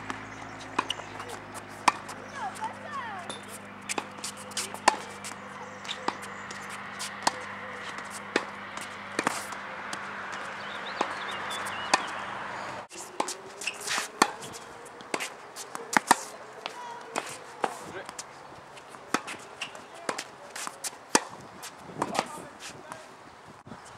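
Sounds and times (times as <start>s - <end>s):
ball bouncing on hard court: 0.0s - 12.2s
tennis ball struck by racquets: 0.0s - 23.0s.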